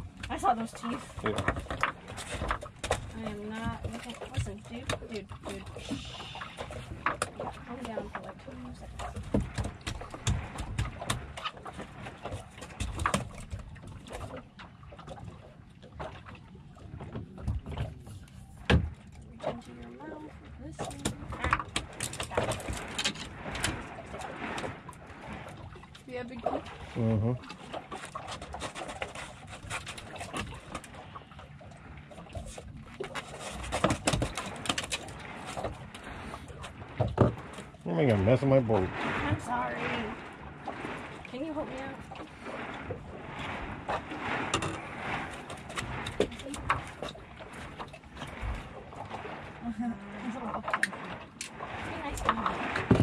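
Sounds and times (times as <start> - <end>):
water lapping against boat hull: 0.0 - 53.0.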